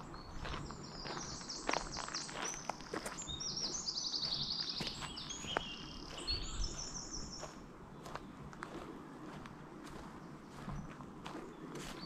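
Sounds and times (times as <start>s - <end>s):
songbird singing trills: 0.0s - 8.4s
footsteps on path: 0.0s - 12.0s.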